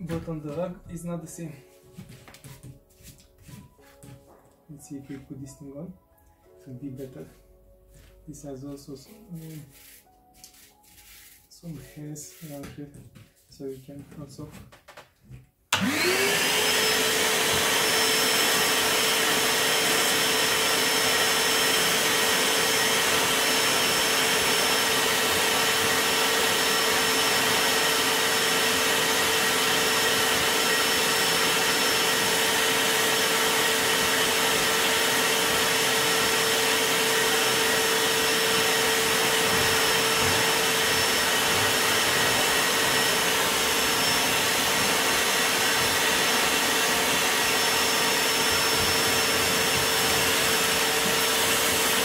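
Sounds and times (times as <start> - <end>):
vacuum motor whining: 15.7 - 52.0.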